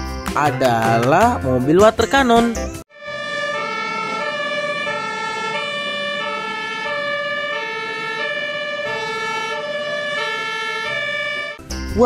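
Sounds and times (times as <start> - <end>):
two-tone emergency siren: 2.9 - 11.6.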